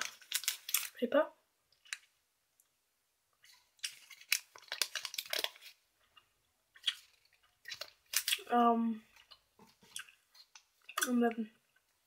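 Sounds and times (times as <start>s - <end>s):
paper wrapper crinkling: 0.0s - 1.0s, 3.4s - 5.8s, 6.8s - 8.4s.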